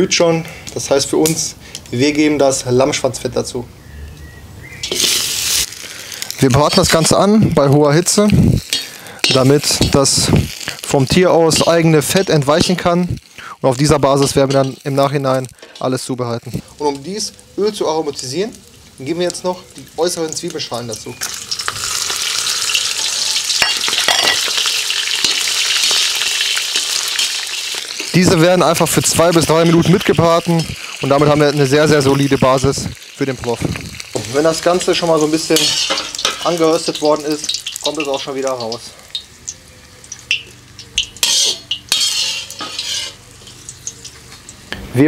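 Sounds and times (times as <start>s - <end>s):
fat sizzling in a pot: 4.2s - 45.0s
metal utensil scraping a pot: 14.2s - 15.0s, 35.5s - 36.5s, 41.0s - 43.7s.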